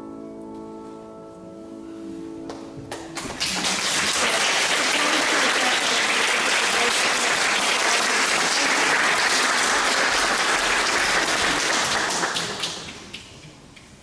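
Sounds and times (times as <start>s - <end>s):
audience applauding: 2.9s - 13.4s.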